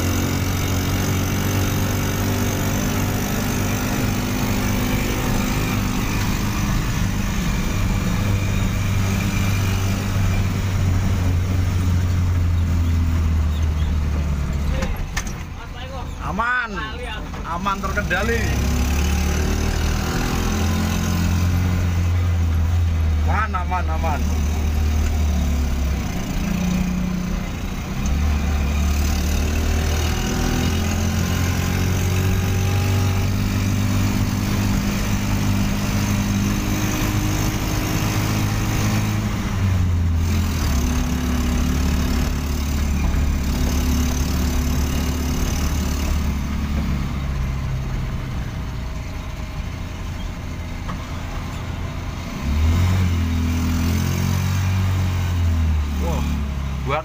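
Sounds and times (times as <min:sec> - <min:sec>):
motorcycle engine running: 0:00.0 - 0:15.2, 0:17.7 - 0:52.3
road noise: 0:00.0 - 0:57.0.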